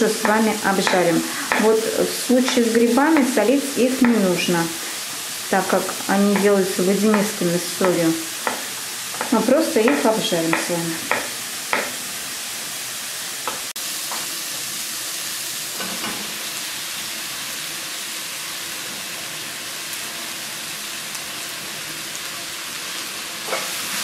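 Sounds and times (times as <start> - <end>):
onions and mushrooms sizzling: 0.0 - 24.0
spatula stirring in pan: 5.7 - 12.0.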